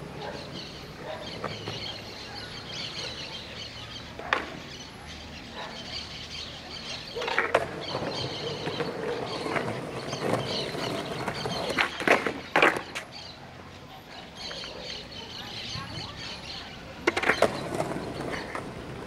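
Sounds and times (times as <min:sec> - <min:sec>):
birds chirping: 0:00.0 - 0:19.0
skateboard rolling on concrete: 0:00.0 - 0:19.0
skateboard clack: 0:04.1 - 0:04.8, 0:07.0 - 0:13.3, 0:15.8 - 0:19.0
skateboard clicks: 0:04.2 - 0:04.7, 0:07.2 - 0:13.2, 0:17.0 - 0:19.0.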